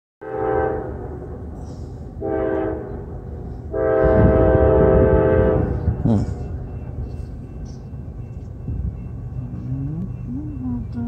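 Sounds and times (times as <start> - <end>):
locomotive air horn blasts: 0.2 - 1.2, 2.2 - 3.1, 3.7 - 6.0
low train rumble: 0.2 - 11.0.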